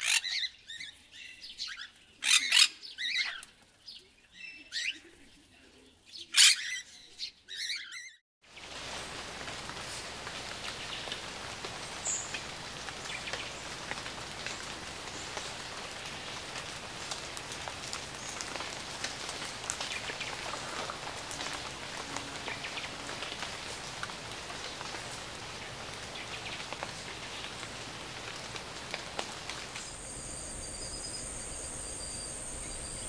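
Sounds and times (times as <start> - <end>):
rain hissing: 8.4 - 33.0
drips on foliage: 8.5 - 33.0.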